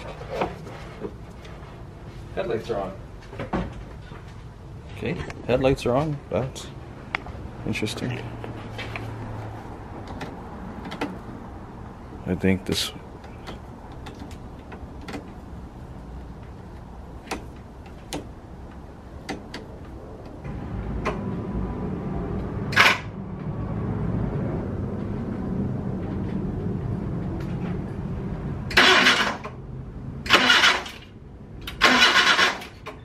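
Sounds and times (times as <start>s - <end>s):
engine cranking on starter: 28.7s - 29.6s, 30.2s - 33.0s.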